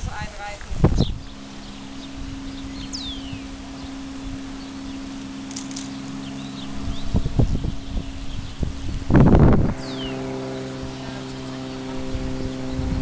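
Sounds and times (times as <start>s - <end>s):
steady low hum: 0.0s - 13.0s
faint high chirps: 0.9s - 13.0s.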